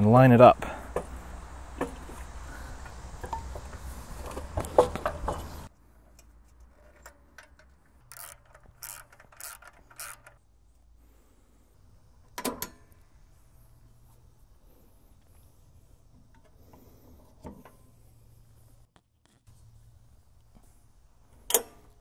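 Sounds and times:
metallic tool clicks and scrapes: 6.1s - 10.4s.

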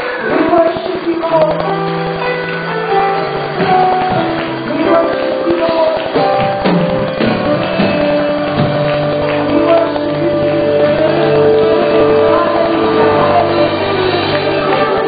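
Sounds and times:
keyboard chords: 0.0s - 15.0s
steady drum beat: 2.1s - 15.0s
voices singing and calling out: 9.2s - 15.0s.

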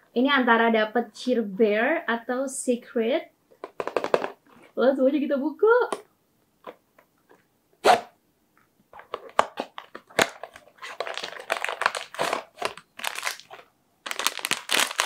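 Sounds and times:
packaging crinkling: 8.9s - 15.0s
cardboard ripping: 9.4s - 15.0s.

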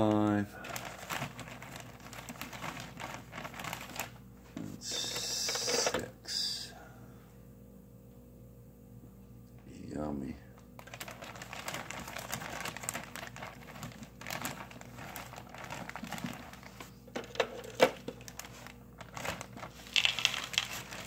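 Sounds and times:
plastic bag crinkling: 0.6s - 4.3s, 10.6s - 21.0s.

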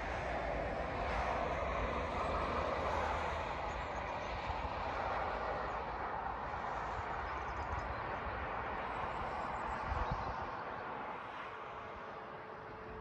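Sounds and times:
tyre hiss from passing vehicles: 0.0s - 9.6s
wind rumbling on microphone: 0.0s - 11.2s.

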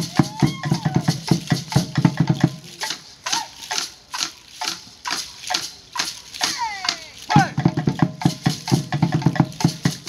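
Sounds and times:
fast drumbeat: 0.0s - 3.8s, 6.4s - 10.0s
rattle shakes: 0.0s - 10.0s.

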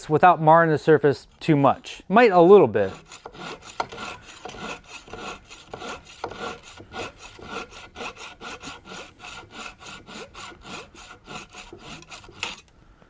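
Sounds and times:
hand saw rasping through wood: 2.8s - 12.7s.

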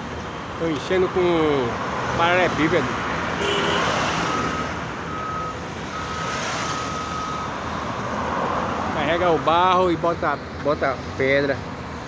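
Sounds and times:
engines and road traffic rumble: 0.0s - 12.0s
reversing alarm beeping: 3.4s - 7.7s.

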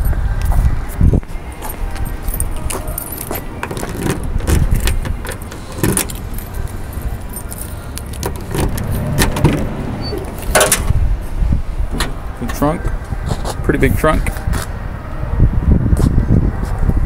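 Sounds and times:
steady low rumble: 0.0s - 17.0s
car keys jangling: 1.4s - 11.0s
trunk lid clack: 8.2s - 11.0s.

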